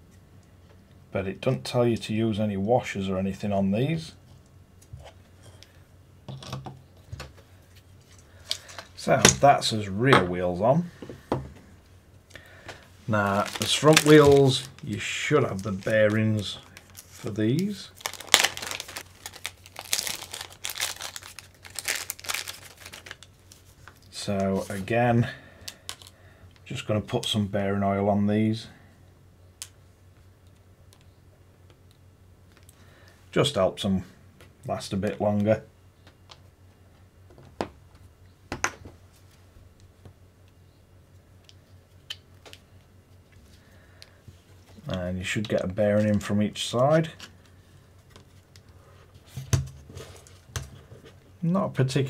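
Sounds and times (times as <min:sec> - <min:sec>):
plastic bag crinkling: 0:13.1 - 0:24.8, 0:25.7 - 0:26.1.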